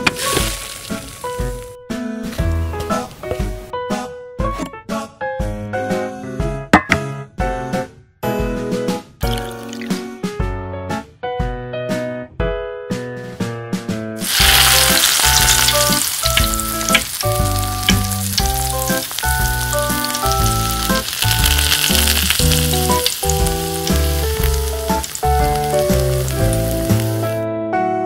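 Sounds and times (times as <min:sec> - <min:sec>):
light piano music: 0:00.0 - 0:04.8, 0:05.5 - 0:28.0
fish sizzling in hot oil: 0:00.2 - 0:01.7, 0:14.2 - 0:27.4.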